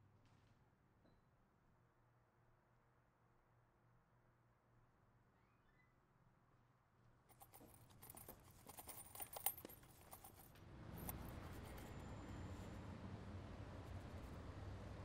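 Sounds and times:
low outdoor background rumble: 6.7s - 15.0s
small clicks and jingles: 7.3s - 12.7s.

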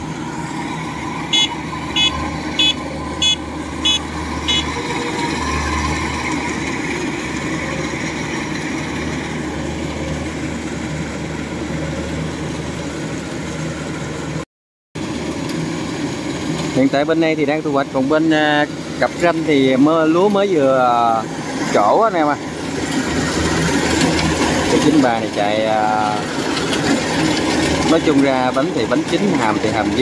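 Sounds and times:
diesel engine running under load: 0.0s - 14.4s, 15.0s - 30.0s
short high electronic beeps: 1.3s - 4.9s.

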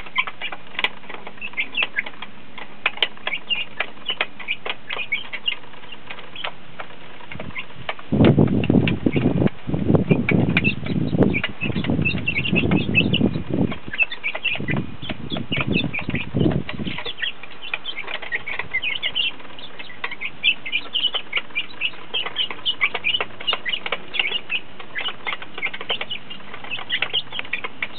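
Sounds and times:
beaks tapping on metal feeder: 0.0s - 27.9s
chicks peeping: 0.0s - 27.9s
wings fluttering: 2.9s - 27.9s.

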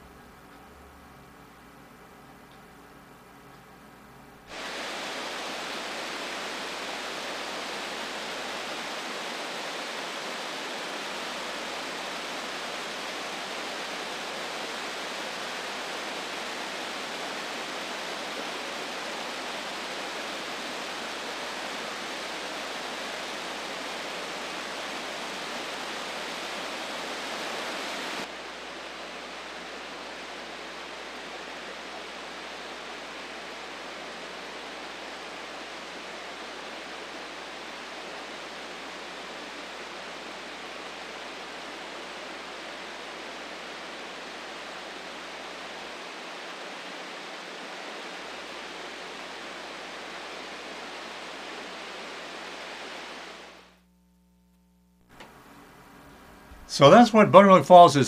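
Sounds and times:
waterfall rushing: 4.5s - 53.6s.

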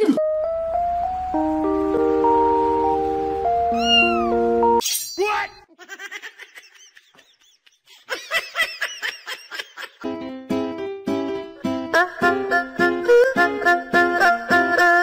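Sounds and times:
background music: 0.0s - 4.8s, 10.0s - 15.0s
cat meowing: 3.7s - 4.4s
plucked-string music: 10.1s - 15.0s.

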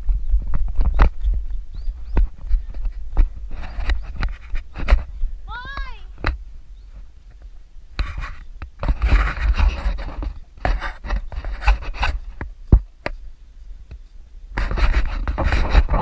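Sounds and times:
camera handling rubbing and scraping: 0.5s - 5.2s, 8.0s - 13.2s, 14.6s - 16.0s.

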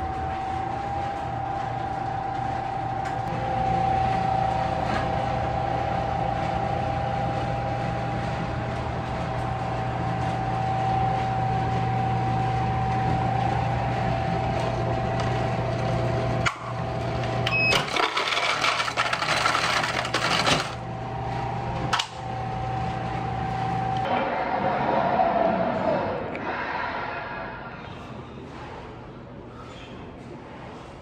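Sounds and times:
microwave oven humming: 0.0s - 26.4s
loud rushing noise: 24.1s - 27.9s.

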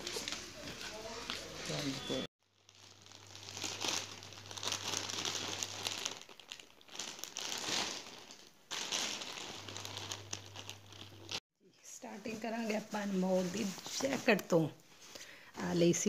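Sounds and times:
plastic bag crinkling: 2.5s - 11.4s.

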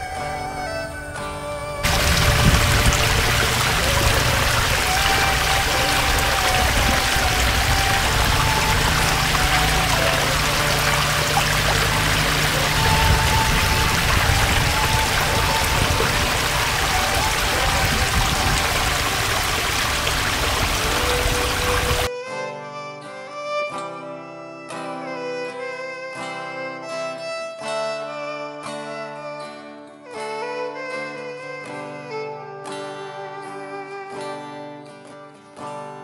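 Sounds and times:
water flowing: 1.8s - 22.1s.

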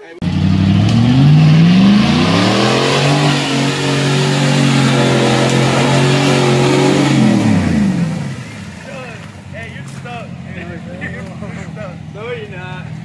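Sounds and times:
engine revving hard: 0.2s - 8.8s.

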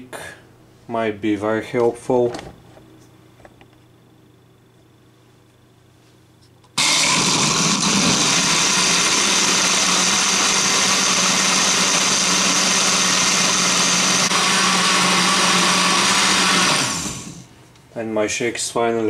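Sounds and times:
blender motor running: 6.8s - 17.5s.

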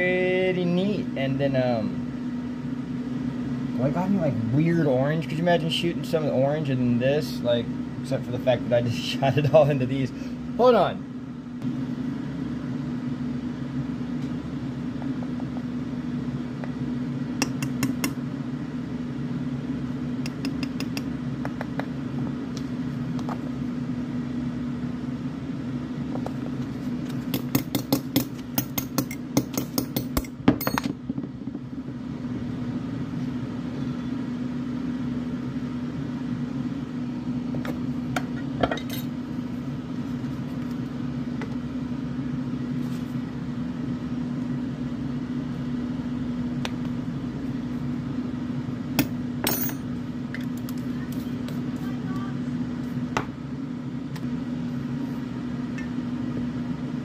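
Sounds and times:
low electrical hum: 0.0s - 57.0s
glass and metal clinks: 38.7s - 39.1s.

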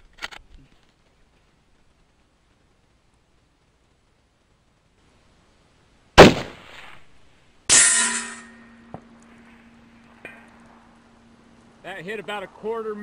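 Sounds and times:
rifle shot: 6.2s - 7.1s
steel target clanging and ringing: 7.7s - 9.0s.

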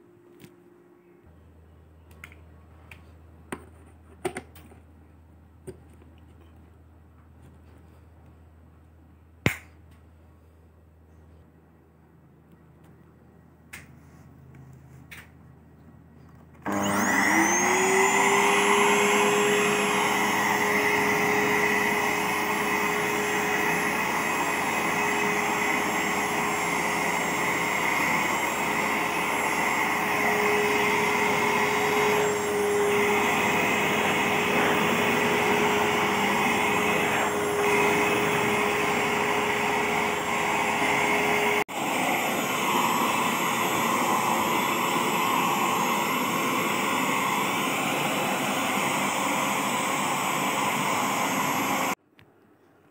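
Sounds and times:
vacuum cleaner running: 16.6s - 52.0s.

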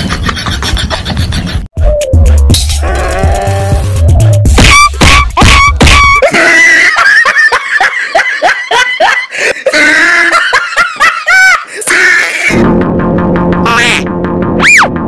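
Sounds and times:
person laughing hard: 0.0s - 1.7s, 4.7s - 12.5s
music with heavy bass: 0.7s - 6.3s, 12.5s - 15.0s.

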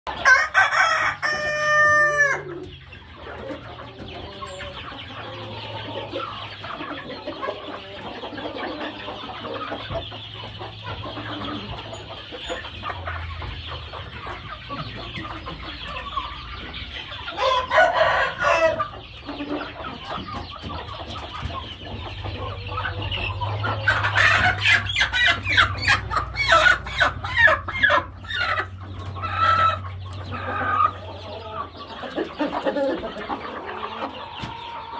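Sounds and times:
chickens clucking: 0.1s - 34.9s
rooster crowing: 0.2s - 2.6s, 17.4s - 18.9s.

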